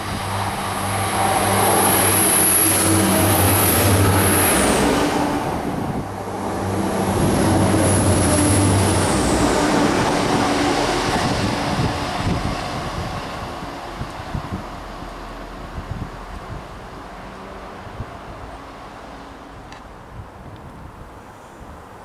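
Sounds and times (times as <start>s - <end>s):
high engine whine: 0.0s - 17.0s
diesel train passing: 0.0s - 20.1s.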